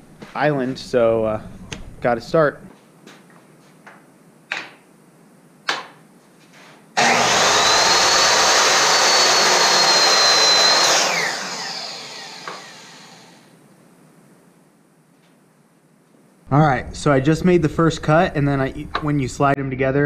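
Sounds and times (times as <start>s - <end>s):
miter saw whining: 7.0s - 13.5s.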